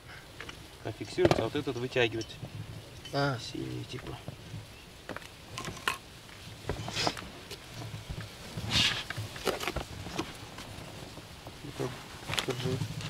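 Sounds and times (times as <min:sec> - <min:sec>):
rope rustling: 0:03.6 - 0:13.0.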